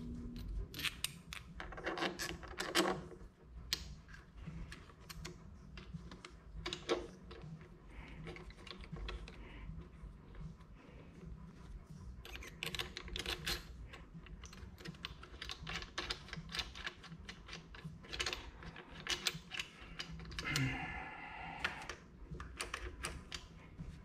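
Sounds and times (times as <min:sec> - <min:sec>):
plastic and metal parts clicking: 0:12.2 - 0:20.7, 0:21.6 - 0:23.5.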